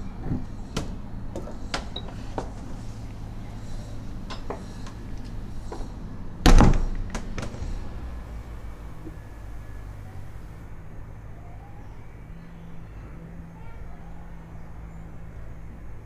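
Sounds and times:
door being shut: 0:06.4 - 0:07.7.

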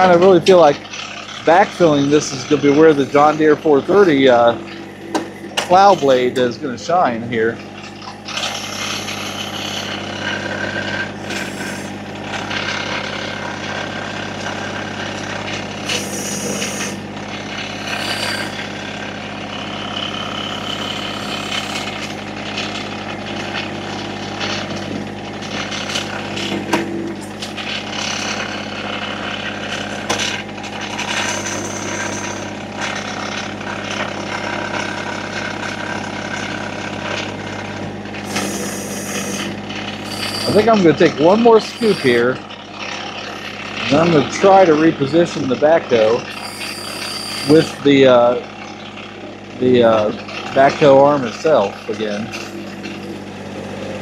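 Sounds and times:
backhoe bucket clanking and scraping: 0:00.0 - 0:08.5
tractor diesel engine running: 0:00.0 - 0:54.0
brief whine: 0:15.8 - 0:17.0, 0:17.7 - 0:18.8, 0:31.0 - 0:32.5, 0:38.3 - 0:42.4, 0:46.3 - 0:47.9.

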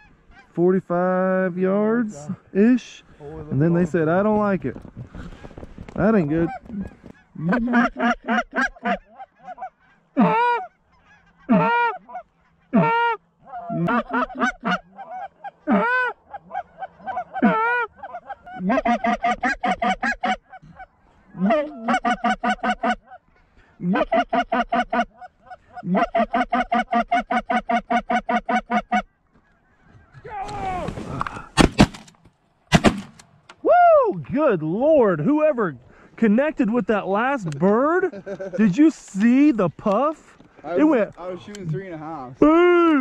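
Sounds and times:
goose call honks: 0:06.4 - 0:23.2
rapid goose call clucks: 0:06.4 - 0:30.3.

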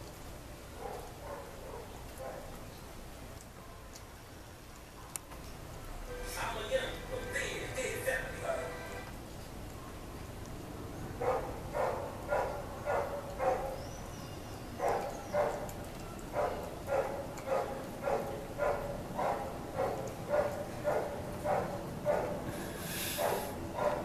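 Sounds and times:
puppy chewing a stick: 0:11.2 - 0:22.4.

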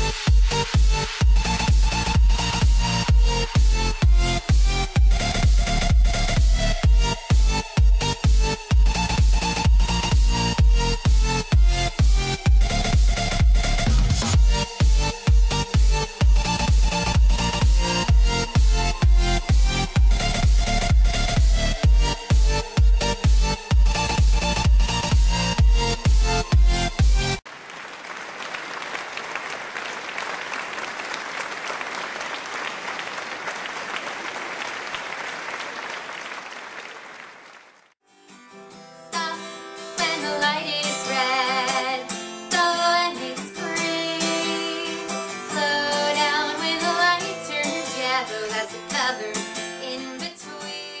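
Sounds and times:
applause: 0:27.4 - 0:38.0
person singing: 0:39.0 - 0:51.0.

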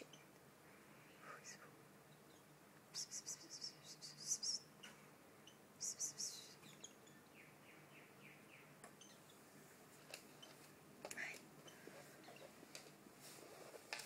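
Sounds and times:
birds chirping: 0:00.0 - 0:09.6.

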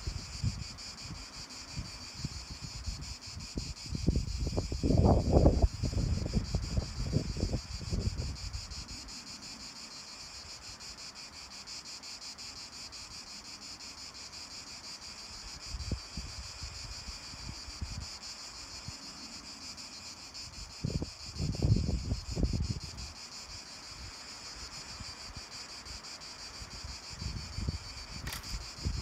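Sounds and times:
wind buffeting microphone: 0:00.0 - 0:08.9, 0:20.6 - 0:23.1, 0:26.7 - 0:29.0
insects chorus: 0:00.0 - 0:29.0.

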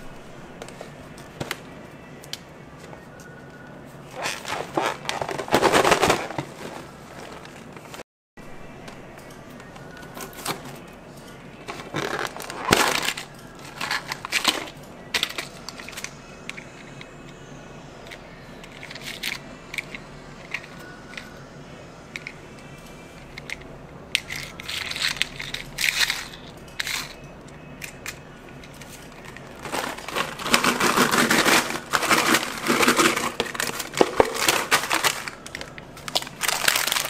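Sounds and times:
plastic crackling and crinkling: 0:04.1 - 0:08.0, 0:11.6 - 0:16.1, 0:27.8 - 0:37.0.

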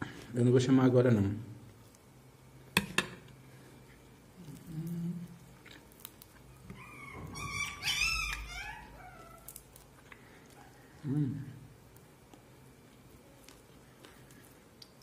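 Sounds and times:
dog whining and whimpering: 0:06.6 - 0:09.5.

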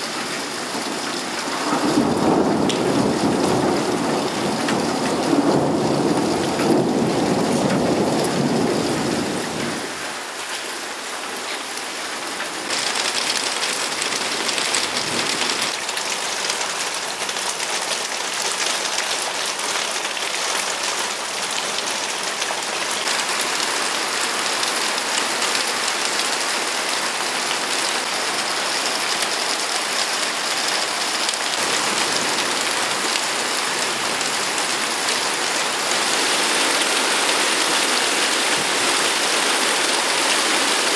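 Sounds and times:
heavy rain on pavement: 0:00.0 - 0:40.9
low rumble of thunder: 0:00.9 - 0:10.0.

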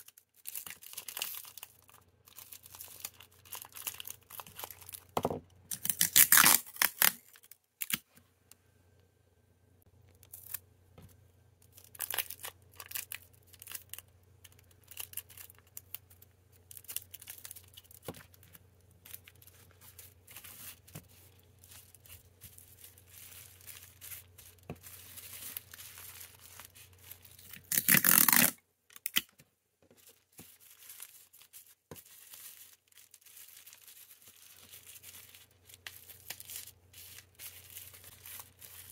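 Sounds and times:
plastic packaging crinkling: 0:00.0 - 0:08.0, 0:11.6 - 0:29.3, 0:30.0 - 0:38.9
plastic ripping: 0:05.7 - 0:08.0, 0:19.1 - 0:29.3.

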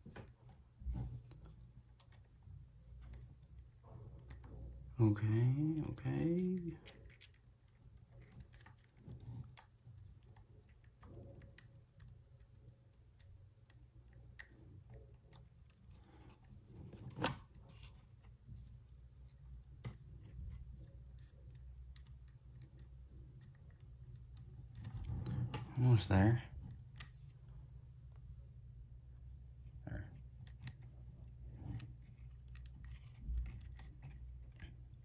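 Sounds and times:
low steady hum: 0:00.0 - 0:35.0
small plastic clicks and scrapes: 0:06.2 - 0:18.0, 0:30.4 - 0:34.9.

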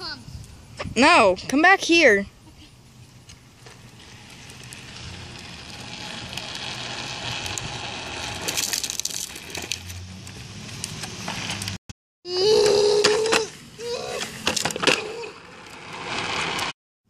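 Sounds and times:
crackling scrapes: 0:02.6 - 0:11.8, 0:14.1 - 0:16.8
plastic wheels grinding on asphalt: 0:02.9 - 0:11.8, 0:14.1 - 0:16.8.

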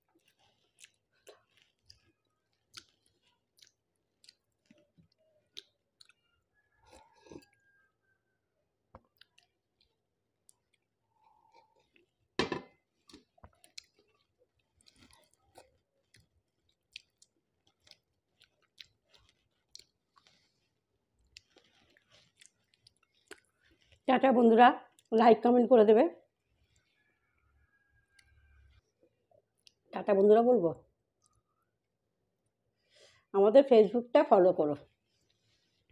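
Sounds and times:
person chewing: 0:00.0 - 0:07.7, 0:09.0 - 0:24.1, 0:24.9 - 0:25.1, 0:26.4 - 0:27.2, 0:31.2 - 0:31.7
knock or clatter: 0:12.4 - 0:12.7.

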